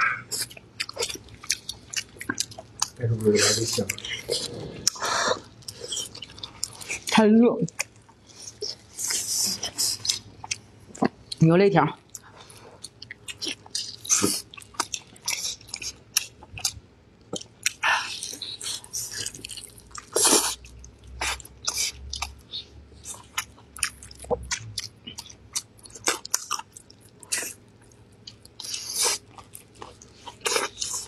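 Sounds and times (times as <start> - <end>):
close chewing and biting: 0.0 - 11.4, 12.0 - 31.0.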